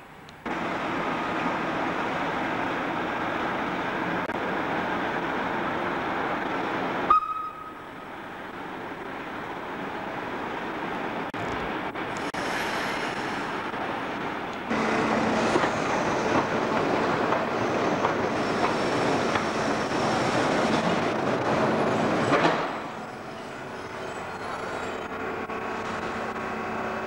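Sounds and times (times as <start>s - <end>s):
railcar running with low hum: 0.0s - 27.0s
train wheels on rail joints: 0.0s - 27.0s
traction motor noise: 14.5s - 27.0s.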